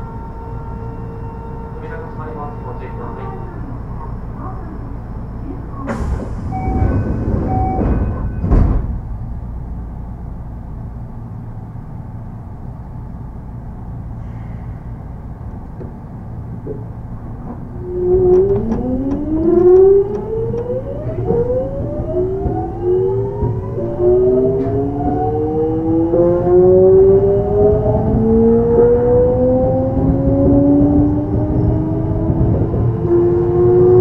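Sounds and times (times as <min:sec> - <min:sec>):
electric train inverter whine: 0:00.0 - 0:34.0
train car low hum: 0:00.0 - 0:34.0
knocks: 0:15.7 - 0:23.6.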